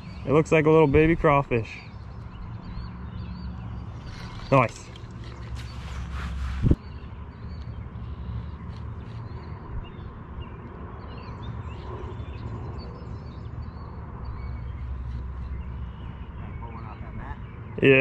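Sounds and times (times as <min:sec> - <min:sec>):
birds chirping and calling: 0:00.0 - 0:18.0
wind rumble on microphone: 0:05.2 - 0:07.8, 0:08.9 - 0:17.8.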